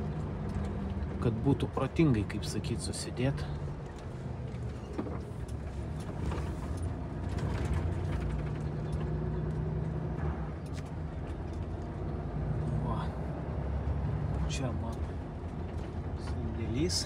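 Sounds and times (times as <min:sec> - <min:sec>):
faint rattles: 0:04.6 - 0:09.6.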